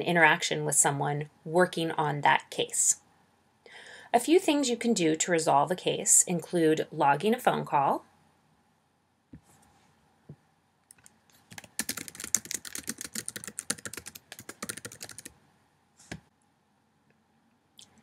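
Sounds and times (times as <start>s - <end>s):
keyboard typing clicks: 10.9s - 15.3s.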